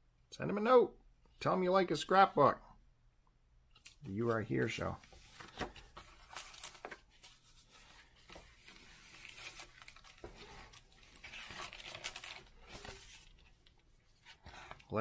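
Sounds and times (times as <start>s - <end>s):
book pages rustling: 4.3s - 15.0s
page turning: 4.7s - 14.9s.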